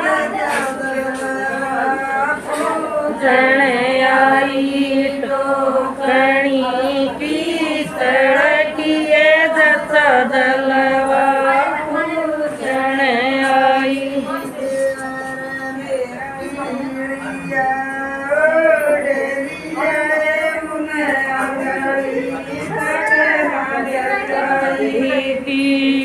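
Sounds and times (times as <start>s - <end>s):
women singing folk song: 0.0s - 26.0s.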